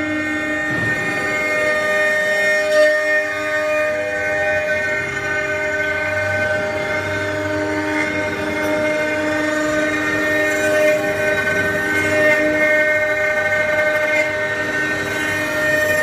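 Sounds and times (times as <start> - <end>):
router spindle whine: 0.0 - 16.0
low hum: 0.4 - 3.3.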